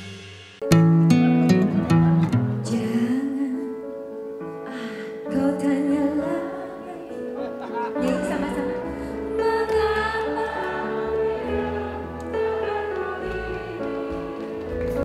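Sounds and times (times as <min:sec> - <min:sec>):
live band playing: 0:00.0 - 0:02.7
woman singing into a microphone: 0:02.6 - 0:03.9, 0:04.7 - 0:07.3, 0:08.0 - 0:10.8.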